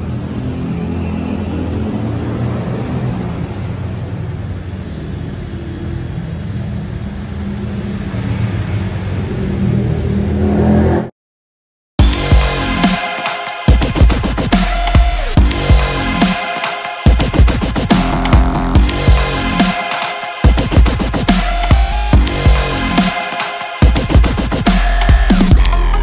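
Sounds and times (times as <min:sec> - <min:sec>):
electronic dance music: 0:12.0 - 0:26.0.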